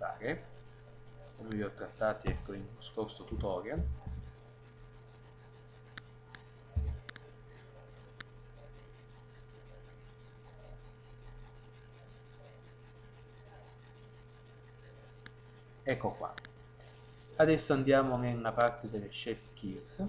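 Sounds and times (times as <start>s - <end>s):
electrical hum: 0.0s - 20.0s
dull thump: 2.2s - 2.6s
computer mouse clicks: 6.0s - 7.3s.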